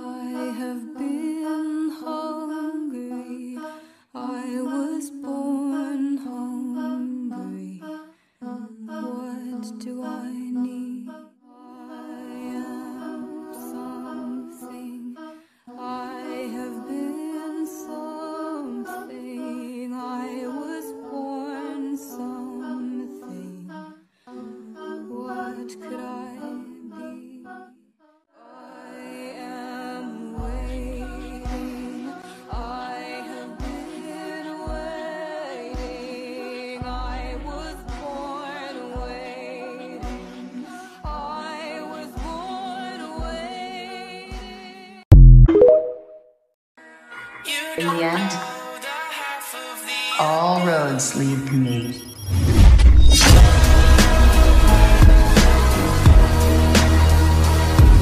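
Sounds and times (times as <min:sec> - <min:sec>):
song with sung vocals: 0:00.0 - 0:46.2, 0:46.8 - 0:58.0
slow hummed vocal melody: 0:29.8 - 0:33.8, 0:36.8 - 0:38.2.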